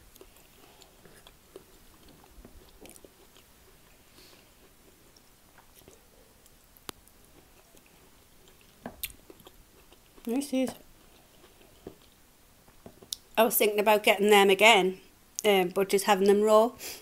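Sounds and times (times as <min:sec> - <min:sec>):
person chewing: 0:00.0 - 0:12.2.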